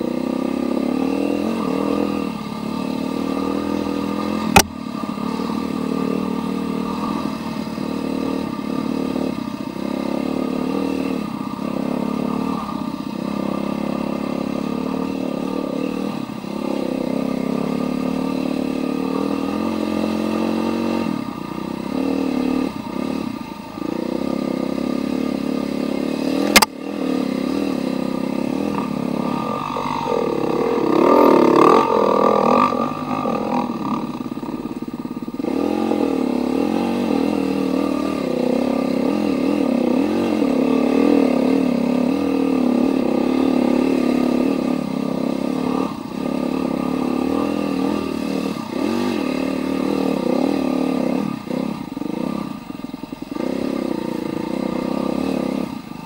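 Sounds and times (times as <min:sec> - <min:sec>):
dirt bike engine revving: 0:00.0 - 0:56.0
sharp knock: 0:04.5 - 0:04.8.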